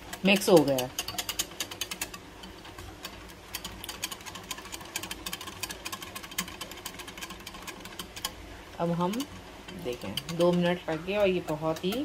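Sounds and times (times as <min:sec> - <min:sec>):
whisk clicking against glass: 0:00.0 - 0:12.0.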